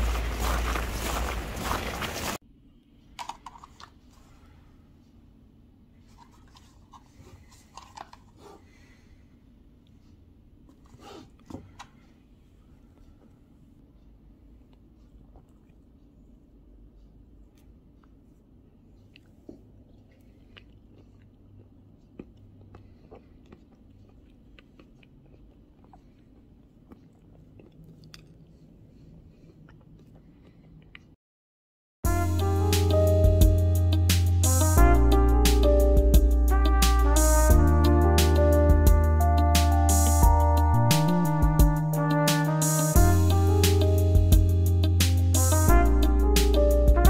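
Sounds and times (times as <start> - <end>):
low room hum: 0.0 - 31.2
person chewing almonds: 14.6 - 16.4, 17.4 - 31.2.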